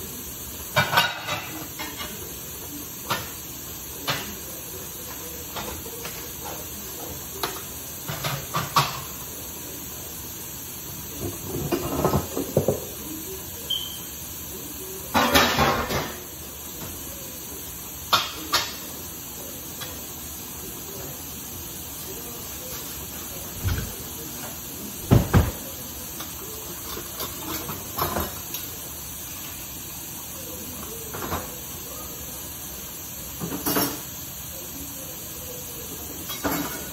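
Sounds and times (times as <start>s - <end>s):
steady hiss: 0.0s - 36.9s
dishes and utensils clattering: 0.7s - 3.4s, 4.0s - 9.2s, 11.1s - 14.0s, 15.1s - 17.0s, 18.1s - 19.0s, 22.6s - 28.8s, 30.8s - 31.6s, 33.4s - 34.2s, 36.0s - 36.9s.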